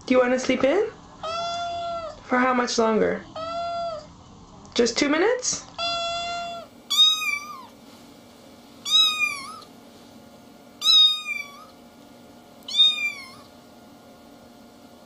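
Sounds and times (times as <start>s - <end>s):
kitten mewing: 1.2s - 2.2s, 3.4s - 4.1s, 5.8s - 7.8s, 8.8s - 9.7s, 10.8s - 11.8s, 12.7s - 13.5s.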